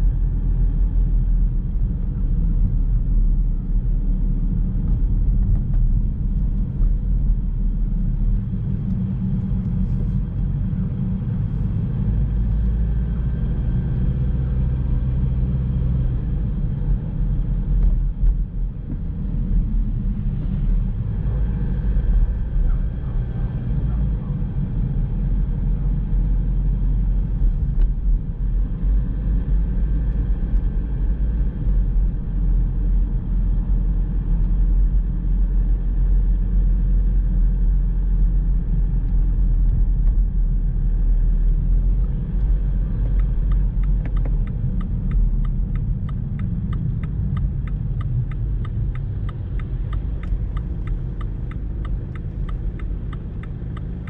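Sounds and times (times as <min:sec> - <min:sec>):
car road and engine rumble: 0:00.0 - 0:54.0
turn signal ticking: 0:41.8 - 0:54.0.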